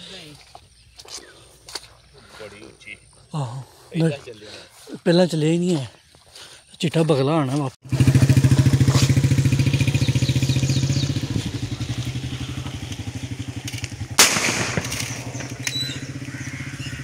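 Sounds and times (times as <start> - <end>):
small engine chugging: 7.8 - 17.0
sharp bang: 14.1 - 15.6.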